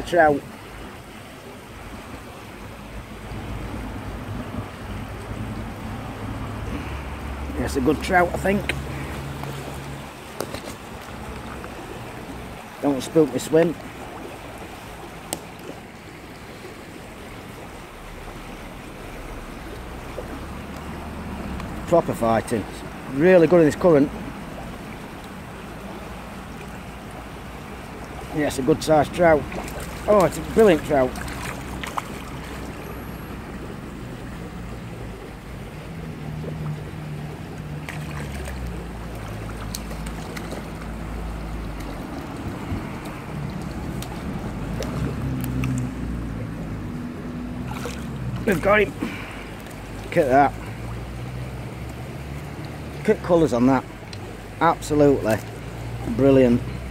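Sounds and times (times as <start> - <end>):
river water flowing: 0.0 - 56.9
fish splashing at surface: 29.0 - 35.3, 36.3 - 46.3, 47.3 - 52.9
wind buffeting microphone: 41.9 - 46.9.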